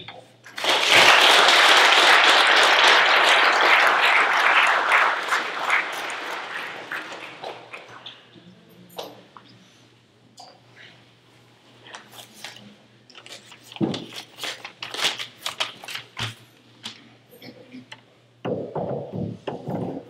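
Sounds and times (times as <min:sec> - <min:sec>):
audience applauding: 0:00.5 - 0:08.2.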